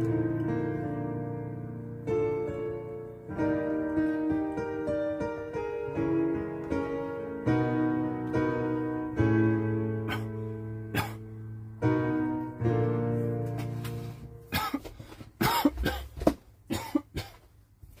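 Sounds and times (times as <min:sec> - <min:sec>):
piano sustained chords: 0:00.0 - 0:14.6
person coughing: 0:10.1 - 0:10.3, 0:10.9 - 0:11.2, 0:14.5 - 0:17.5.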